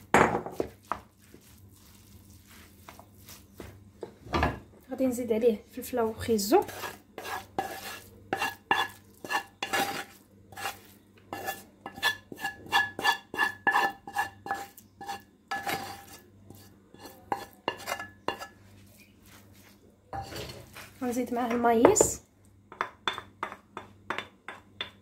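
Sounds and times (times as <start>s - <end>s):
wooden spoon scraping frying pan: 0.4s - 3.8s, 6.4s - 21.2s.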